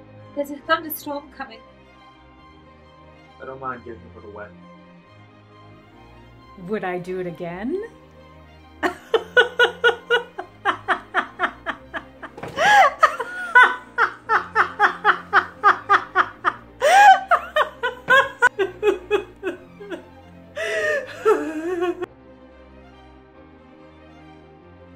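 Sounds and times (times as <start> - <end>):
woman laughing hard: 8.8 - 22.1.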